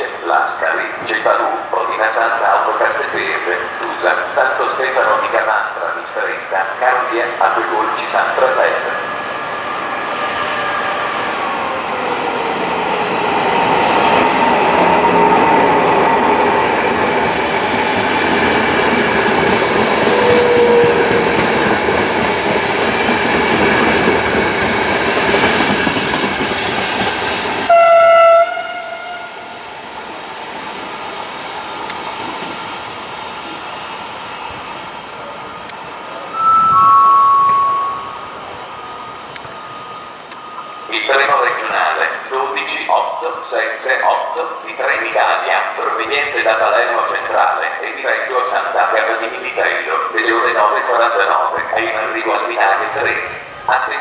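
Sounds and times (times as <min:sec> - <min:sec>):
train rolling on rails: 0:00.0 - 0:54.0
train horn blast: 0:20.1 - 0:21.1, 0:27.7 - 0:29.5
two-tone signal: 0:36.2 - 0:41.0.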